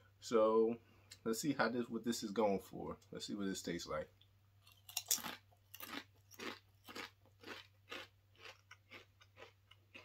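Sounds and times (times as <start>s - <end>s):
chewing crunchy chip: 4.7s - 10.0s.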